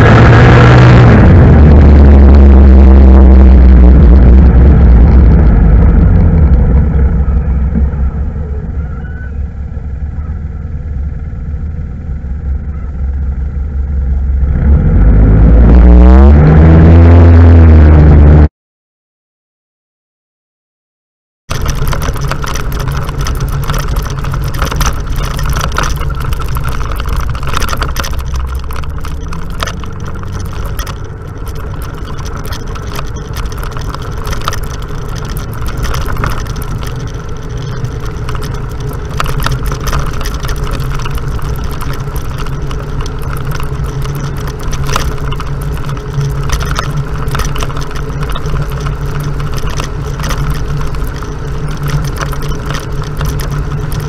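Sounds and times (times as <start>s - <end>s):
off-road vehicle engine running: 0.0s - 18.5s, 21.5s - 54.0s
clatter of knocks and rattles: 21.5s - 54.0s.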